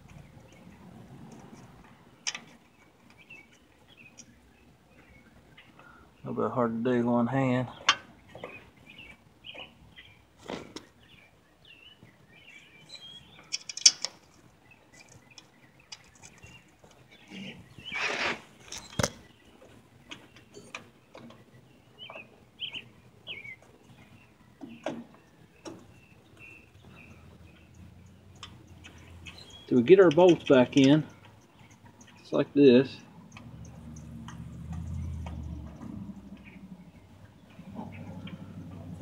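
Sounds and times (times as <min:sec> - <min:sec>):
metal scrape: 0:17.4 - 0:18.9.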